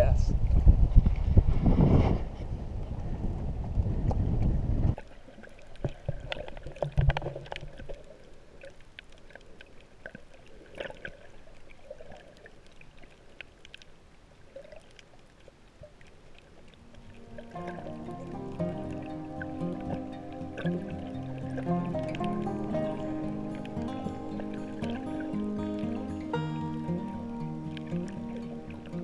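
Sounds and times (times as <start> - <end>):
wind rumbling on microphone: 0.0 - 5.1
water gurgling with pops: 3.6 - 29.0.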